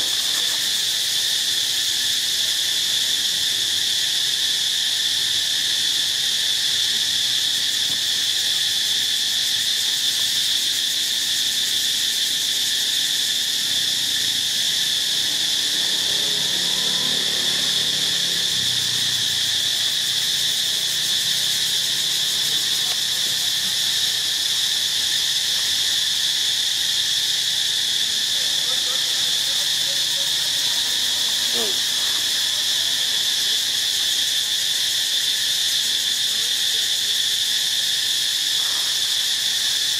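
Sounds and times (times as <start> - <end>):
insects buzzing: 0.0 - 39.9.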